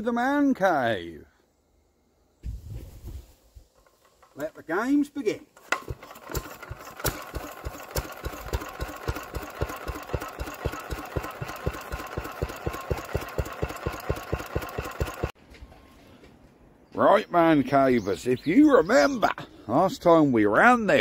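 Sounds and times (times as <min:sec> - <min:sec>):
single-cylinder stationary engine running: 0:05.7 - 0:15.4.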